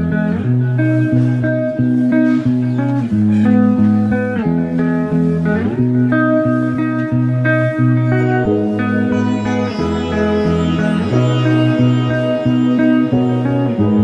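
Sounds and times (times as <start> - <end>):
guitar tune: 0.0 - 14.0
bass line: 7.3 - 14.0.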